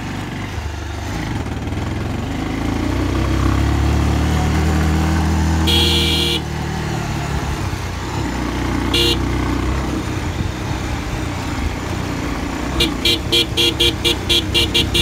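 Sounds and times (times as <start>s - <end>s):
motorcycle engine running: 0.0s - 15.0s
horn beeping: 5.6s - 6.5s, 8.8s - 9.4s, 12.8s - 15.0s.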